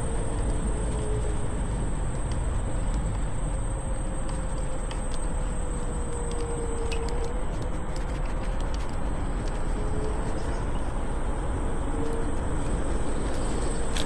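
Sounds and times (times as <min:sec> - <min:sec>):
small clicks from bumps: 0:00.0 - 0:10.8
wind and tyre rumble: 0:00.0 - 0:14.0.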